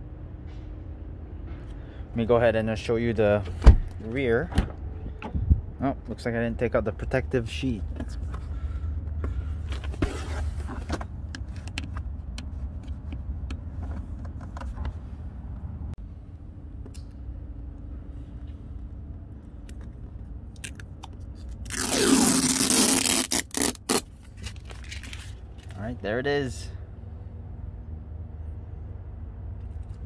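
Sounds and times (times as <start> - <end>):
plastic film ripping: 21.6 - 25.3
plastic film scratching and crinkling: 21.7 - 25.4.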